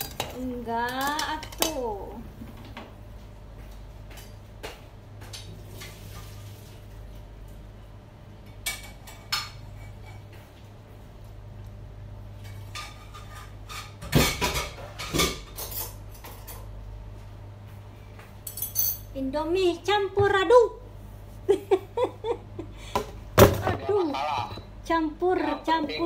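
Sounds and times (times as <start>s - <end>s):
utensils clinking on saucepan: 0.0s - 1.8s, 18.5s - 19.1s.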